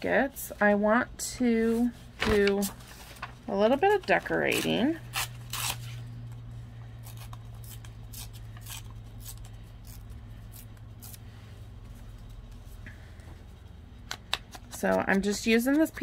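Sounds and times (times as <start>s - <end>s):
steady low hum: 0.0s - 16.0s
paper rustling: 1.7s - 4.8s.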